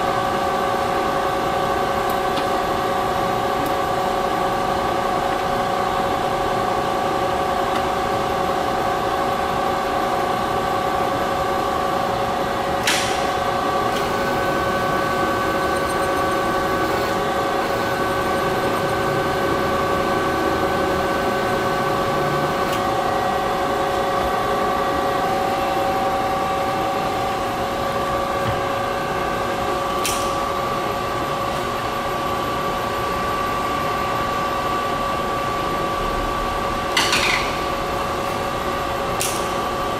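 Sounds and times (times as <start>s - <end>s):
lathe machine whine: 0.0s - 36.9s
higher machine whine: 11.4s - 36.9s.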